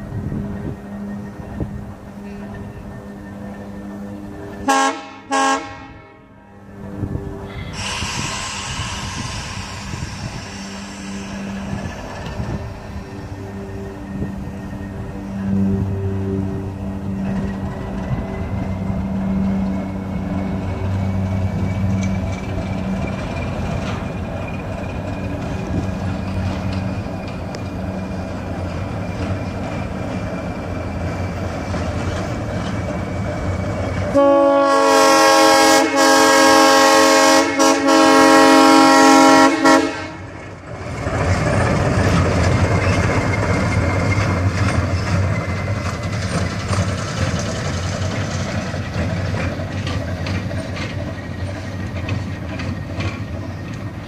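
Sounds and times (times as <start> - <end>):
locomotive engine running: 0.0 - 54.0
track noise: 0.0 - 54.0
locomotive horn chord: 2.0 - 7.5, 12.4 - 19.6, 34.1 - 40.4.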